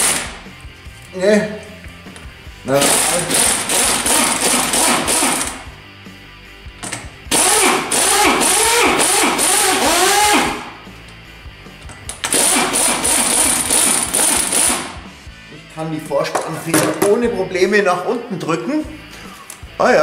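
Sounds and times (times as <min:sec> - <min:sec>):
impact wrench hammering: 0:02.8 - 0:05.7, 0:06.8 - 0:10.7, 0:12.1 - 0:15.0.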